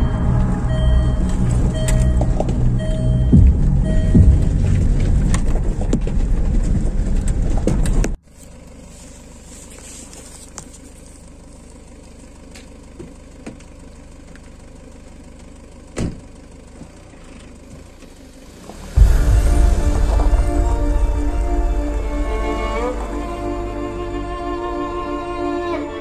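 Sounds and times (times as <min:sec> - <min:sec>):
car engine rumble: 0:00.0 - 0:26.0
loud background music: 0:19.0 - 0:26.0.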